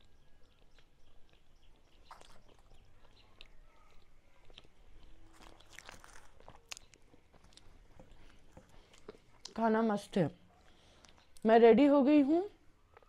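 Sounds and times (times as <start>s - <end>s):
chewing and crunching: 0.0s - 9.6s, 10.5s - 11.5s
small crackles and clicks: 0.0s - 9.6s.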